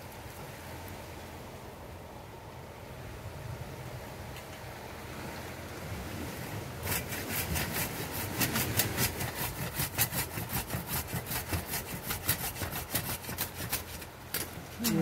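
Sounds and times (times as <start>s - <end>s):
hand saw cutting through root: 6.8s - 15.0s.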